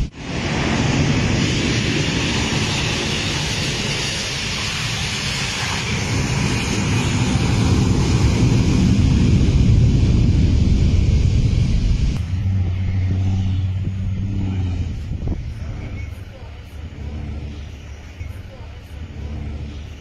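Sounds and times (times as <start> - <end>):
jet engines roaring: 0.0 - 20.0
wind rumbling on microphone: 0.0 - 20.0
fire truck driving past: 7.3 - 20.0.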